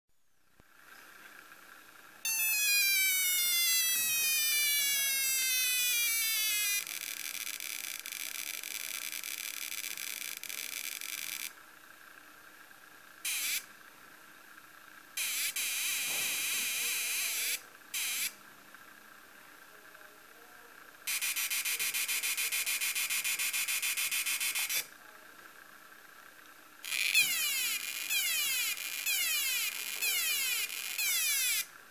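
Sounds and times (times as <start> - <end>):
high falling electronic whistle: 2.3 - 7.0.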